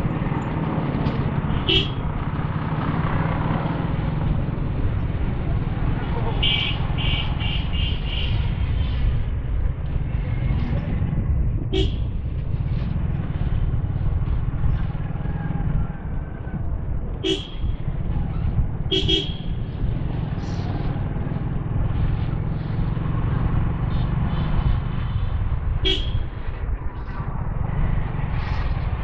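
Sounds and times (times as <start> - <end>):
motorcycle engine rumble: 0.0 - 29.0
horn toots: 1.6 - 2.0, 6.4 - 8.4, 11.7 - 12.0, 17.2 - 17.7, 18.9 - 19.6, 25.8 - 26.3
wind noise on microphone: 3.0 - 29.0.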